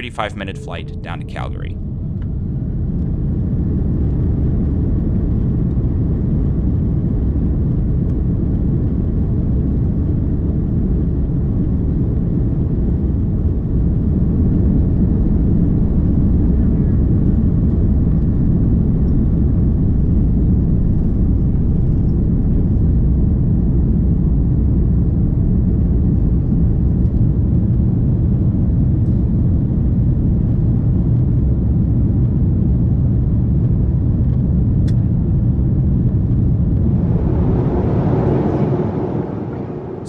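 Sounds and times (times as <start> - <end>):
airplane cabin engine rumble: 0.0 - 40.0.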